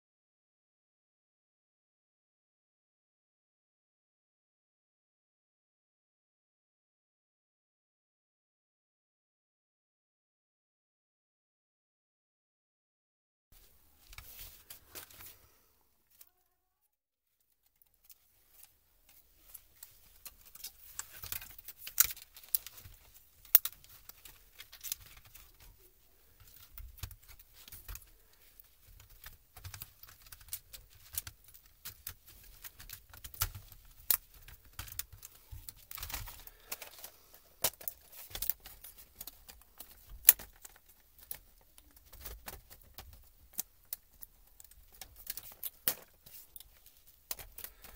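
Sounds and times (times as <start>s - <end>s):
rustling: 13.6s - 16.4s, 17.4s - 47.9s.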